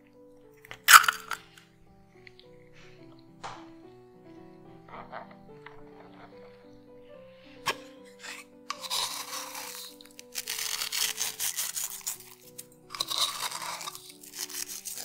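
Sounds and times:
background music: 0.0s - 15.0s
salt rubbed between fingers: 8.7s - 15.0s.

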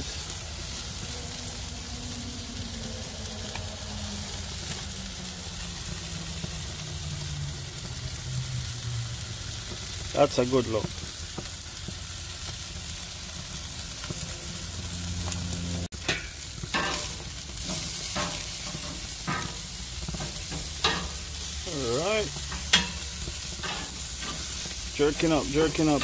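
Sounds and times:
chicken sizzling on grill: 0.0s - 26.0s
tongs clicking on grate: 17.7s - 21.2s, 22.4s - 24.4s.

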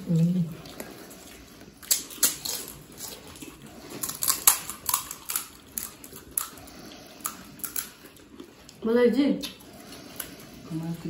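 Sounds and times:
crisp shells cracking: 1.8s - 8.2s.

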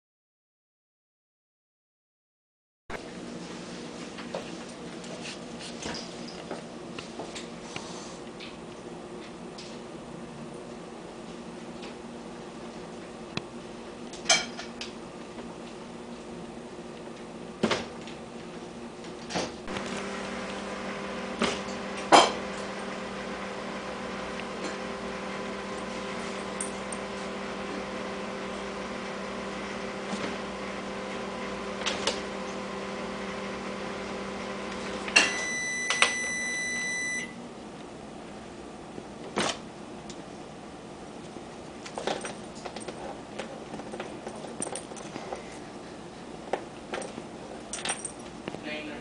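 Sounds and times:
kitchen appliance hum: 3.0s - 47.8s
long high electronic beep: 35.2s - 37.3s.

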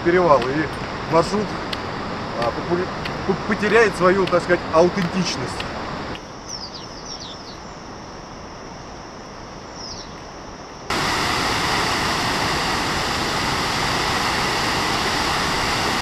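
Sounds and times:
bird chirps: 6.2s - 7.8s, 9.7s - 10.2s
waterfall rushing: 10.9s - 16.0s.

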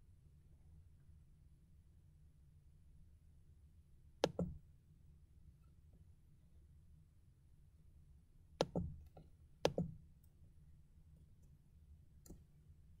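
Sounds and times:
computer mouse clicking: 4.2s - 4.6s, 8.6s - 9.0s, 9.6s - 9.9s.

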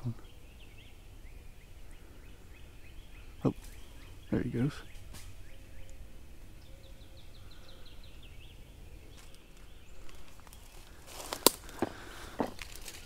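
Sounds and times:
footsteps crunching through dry leaves: 9.1s - 13.0s.

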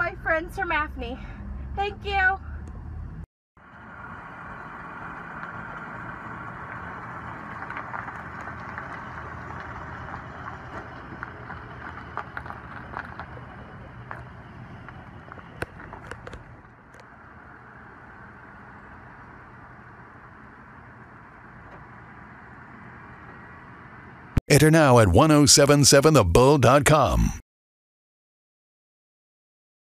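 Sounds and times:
car engine running: 0.0s - 24.8s
gravel crunching: 3.6s - 24.2s.

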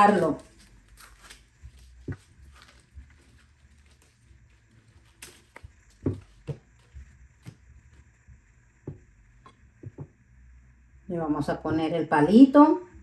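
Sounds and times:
corn husks rustling: 0.0s - 7.6s
light knocks on cutting board: 8.8s - 9.0s, 9.8s - 10.2s.

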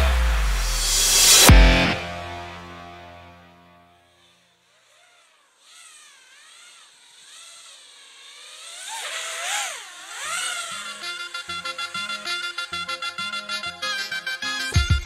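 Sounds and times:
quadcopter motors whining: 4.1s - 15.0s.

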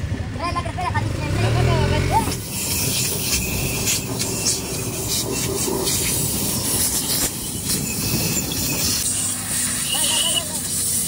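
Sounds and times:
hand tool scraping metal: 2.3s - 11.0s.

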